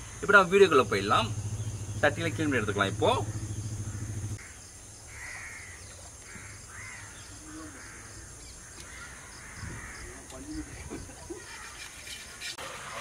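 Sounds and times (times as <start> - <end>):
crows cawing: 3.3 - 10.6.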